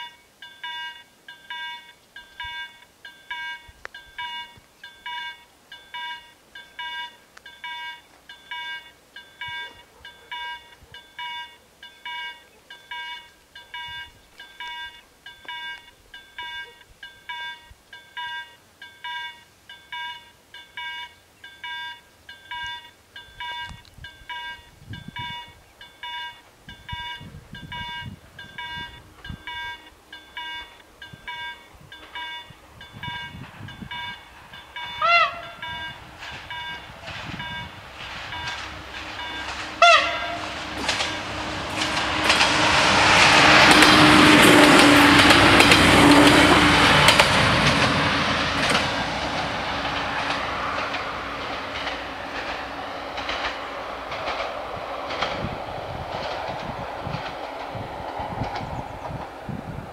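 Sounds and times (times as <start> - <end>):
level crossing bells ringing: 0.0 - 42.3
low train rumble: 0.0 - 59.9.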